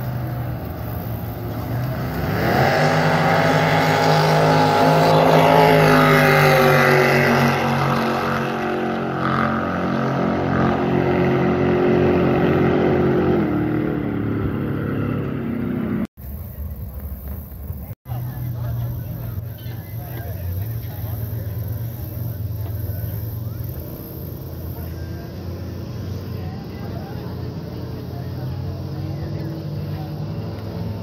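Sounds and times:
jet boat engine at full throttle: 0:00.0 - 0:31.0.

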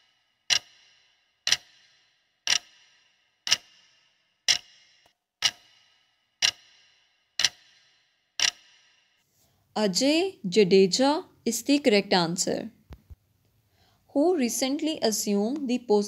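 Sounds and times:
countdown clock ticking: 0:00.0 - 0:09.2.

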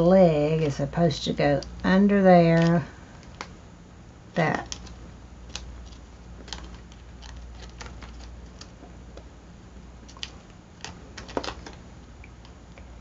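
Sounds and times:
steady low hum: 0:00.0 - 0:13.0
paper rustling and crinkling: 0:02.5 - 0:03.5, 0:04.6 - 0:08.8, 0:10.0 - 0:11.8.

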